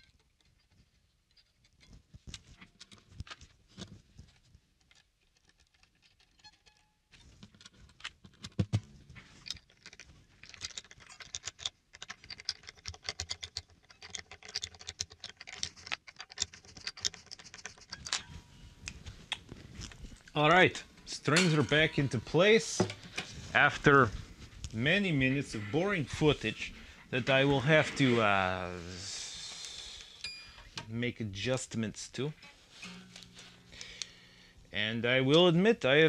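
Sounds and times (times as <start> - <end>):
guitar strings clicking and rattling: 0.0 - 29.0, 32.2 - 34.5
faint short ringing tones: 30.2 - 30.8.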